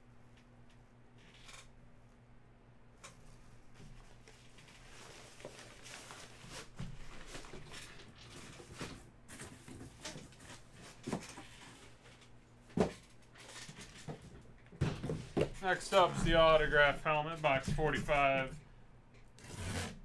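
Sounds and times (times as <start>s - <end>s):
boxes and packaging rustling: 3.2s - 18.6s.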